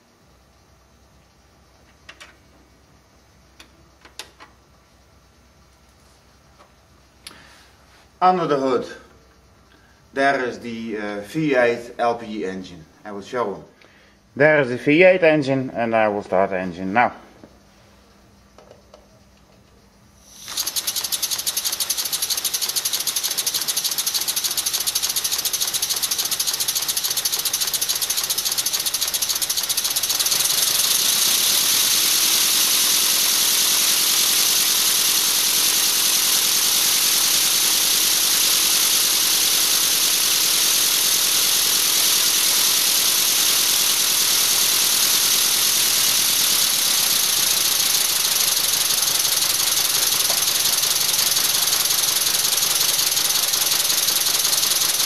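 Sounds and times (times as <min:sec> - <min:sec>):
pneumatic engine hiss and clatter: 0:20.1 - 0:55.0.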